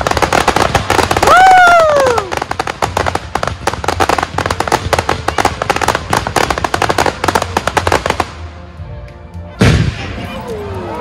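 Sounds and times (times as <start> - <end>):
fireworks crackling pops: 0.0 - 10.6.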